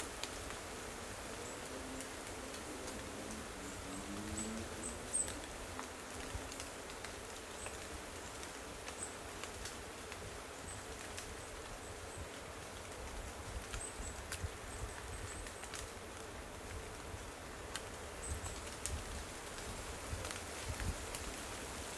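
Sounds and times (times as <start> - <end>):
steady hiss: 0.0 - 21.9
wind rumbling on microphone: 18.2 - 21.9.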